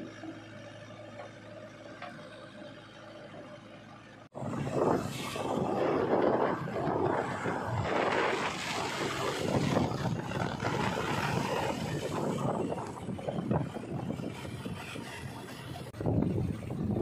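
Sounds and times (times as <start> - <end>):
diesel engine running: 0.0 - 17.0
wind buffeting microphone: 4.4 - 17.0.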